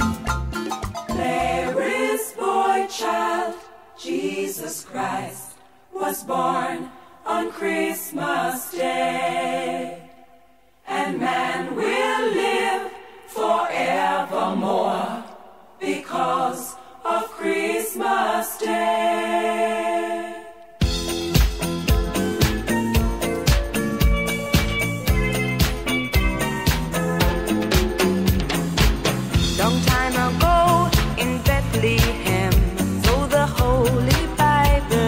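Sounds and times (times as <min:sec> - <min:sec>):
voices singing a melody: 0:01.1 - 0:20.8, 0:29.5 - 0:35.0.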